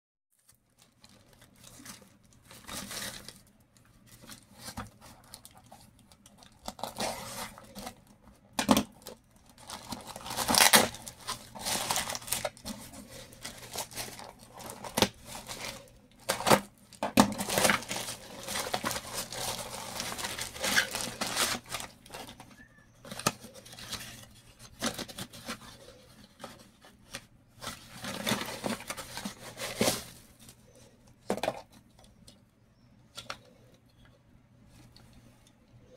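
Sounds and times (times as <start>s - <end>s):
plastic crinkling and rustling: 0.4s - 32.3s
plastic wrapping being torn: 8.6s - 22.4s.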